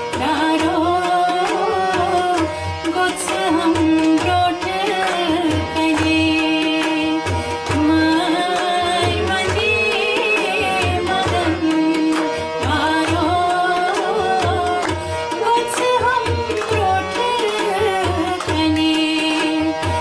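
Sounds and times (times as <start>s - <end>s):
tabla drum rhythm: 0.0s - 20.0s
person singing: 7.7s - 19.8s.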